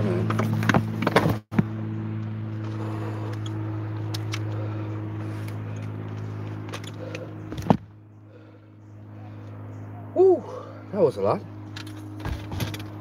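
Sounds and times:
engine idling: 0:00.0 - 0:13.0
straps and buckles clicking: 0:05.4 - 0:07.8.

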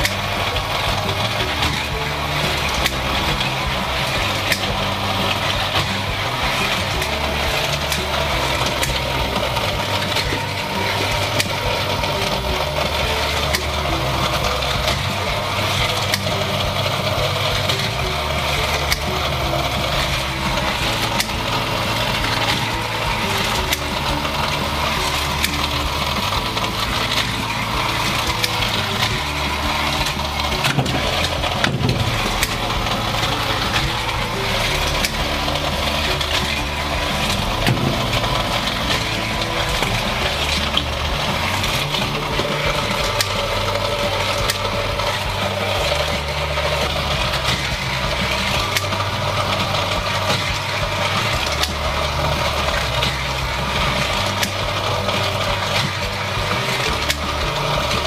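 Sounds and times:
small clicks from track: 0:00.0 - 0:58.0
toy car motor running: 0:00.0 - 0:58.0.

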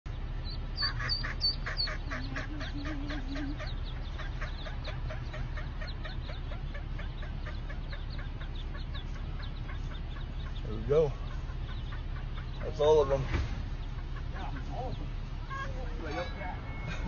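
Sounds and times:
ducklings peeping: 0:00.1 - 0:17.0
steady low rumble: 0:00.1 - 0:17.0.

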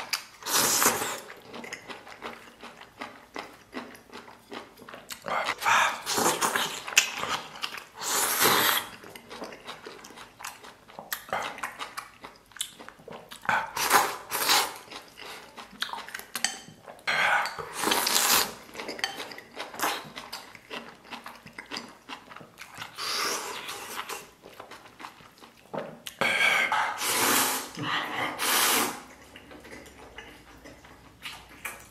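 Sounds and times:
chewing: 0:00.0 - 0:27.0, 0:29.0 - 0:31.9
man slurping noodles: 0:00.4 - 0:01.2, 0:08.0 - 0:08.9, 0:26.3 - 0:29.2.

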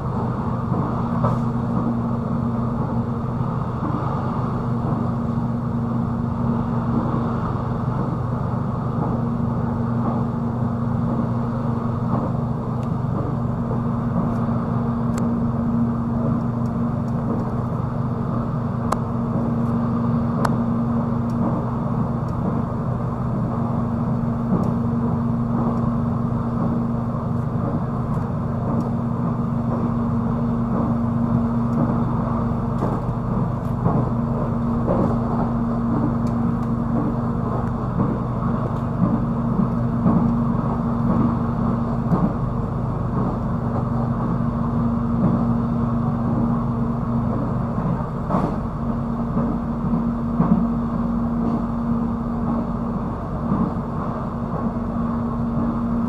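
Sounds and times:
constant low hum: 0:00.0 - 0:56.0
train wheels rumbling on rails: 0:00.0 - 0:56.0.

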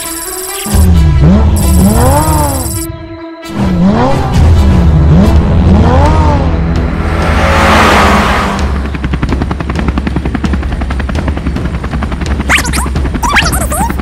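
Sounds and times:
cartoon helicopter rotor chopping: 0:00.0 - 0:02.9, 0:08.6 - 0:14.0
squeaky cartoon vocal glides: 0:12.5 - 0:14.0.

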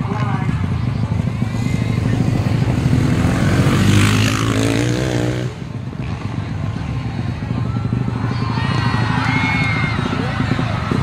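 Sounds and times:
dirt bike engines running: 0:00.0 - 0:11.0
dirt bike revving loudly: 0:00.6 - 0:07.2.

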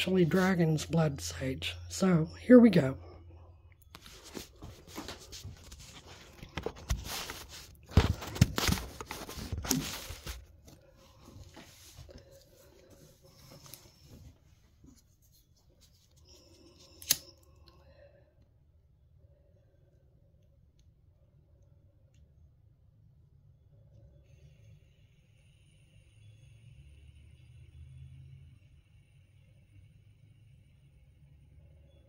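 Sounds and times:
lighter click: 0:17.0 - 0:17.5.

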